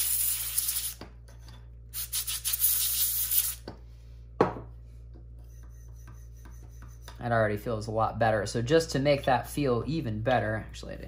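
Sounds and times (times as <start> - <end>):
compressed air hissing: 2.0 - 3.6.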